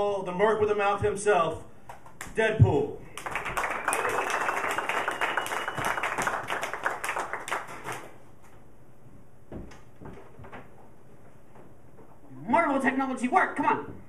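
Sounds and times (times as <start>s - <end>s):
small audience applauding: 3.1s - 8.3s.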